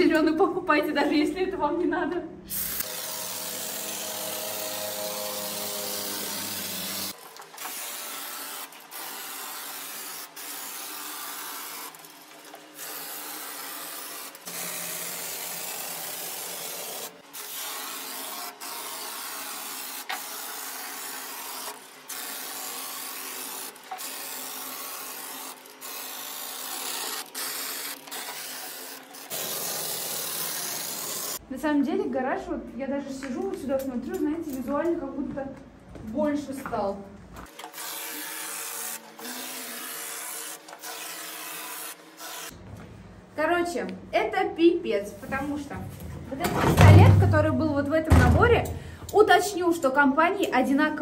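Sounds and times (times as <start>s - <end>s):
spray foam hissing from a can: 22.2s - 31.4s.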